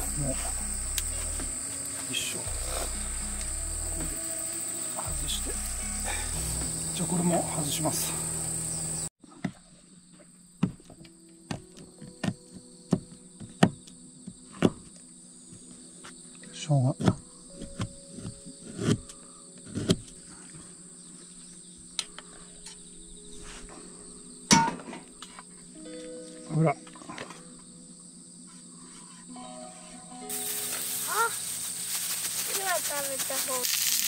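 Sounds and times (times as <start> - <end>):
faint sustained music notes: 0.0 - 9.1, 20.1 - 33.6
insects trilling: 0.0 - 34.0.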